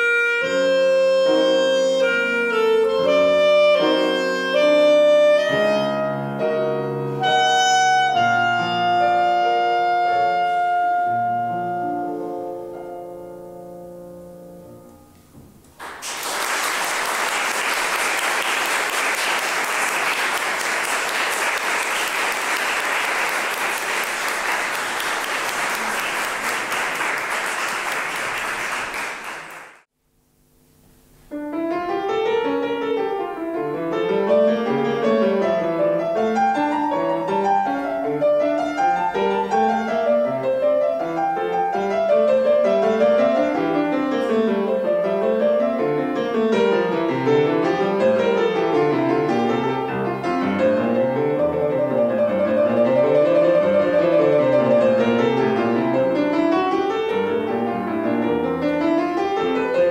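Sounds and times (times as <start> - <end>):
clarinet and piano classical piece: 0.0 - 15.6, 31.3 - 59.9
audience applause: 15.8 - 29.8.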